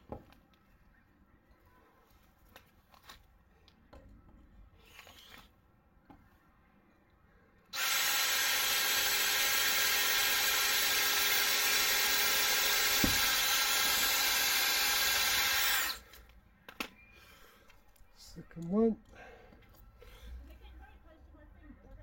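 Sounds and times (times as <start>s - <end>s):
electric drill running: 7.7s - 16.1s.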